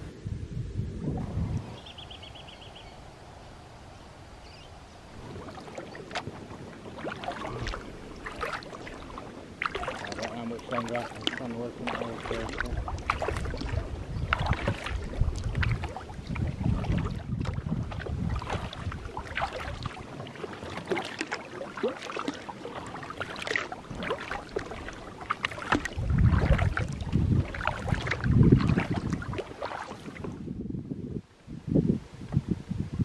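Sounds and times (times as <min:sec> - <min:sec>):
wind buffeting microphone: 0:00.0 - 0:21.1, 0:22.8 - 0:33.0
water lapping at hull: 0:04.7 - 0:30.6
paddle splashing water: 0:04.9 - 0:30.6.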